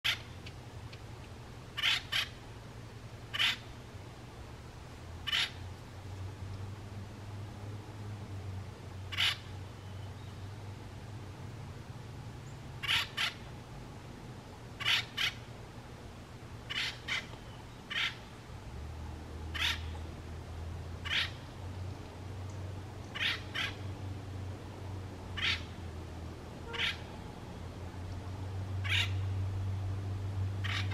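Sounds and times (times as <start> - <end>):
steady low hum: 0.1 - 30.9
woodpecker calling: 1.8 - 2.4, 3.3 - 3.7, 5.2 - 5.6, 9.1 - 10.1, 12.8 - 13.5, 14.8 - 15.4, 16.7 - 18.3, 19.5 - 20.0, 21.0 - 21.4, 22.5 - 23.8, 25.4 - 25.8, 26.6 - 27.1, 28.8 - 29.4, 30.6 - 30.9.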